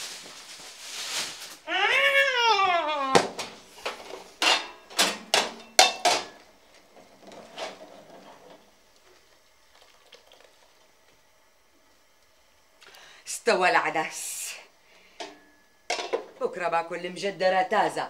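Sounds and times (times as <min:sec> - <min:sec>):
woman crying out: 0:01.7 - 0:03.2.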